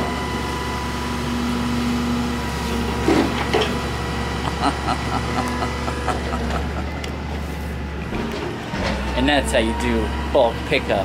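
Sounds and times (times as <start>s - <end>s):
diesel engine running: 0.0s - 11.0s
crane knocks: 8.0s - 9.6s.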